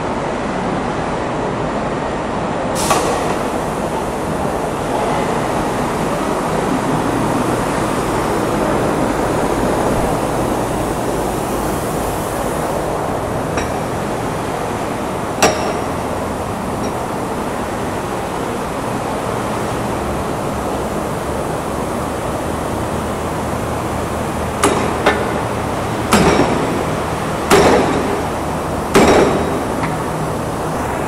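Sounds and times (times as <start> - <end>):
steady background noise: 0.0 - 31.0
hammer striking steel wire rope: 15.4 - 16.0, 24.6 - 25.4, 26.1 - 26.8, 27.5 - 28.3, 28.9 - 30.0.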